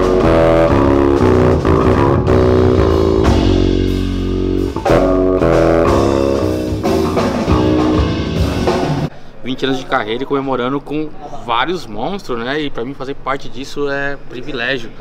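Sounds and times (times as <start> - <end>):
rock music with bass guitar: 0.0 - 9.1.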